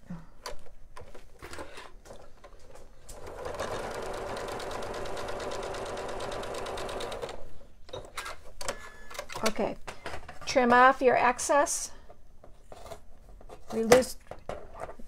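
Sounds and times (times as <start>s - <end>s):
sewing machine stitching: 3.1s - 7.4s.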